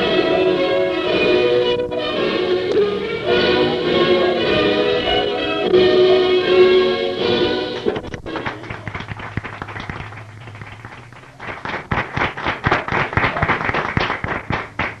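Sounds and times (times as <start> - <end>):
audience applauding: 7.7 - 15.0
faint low hum: 8.0 - 15.0.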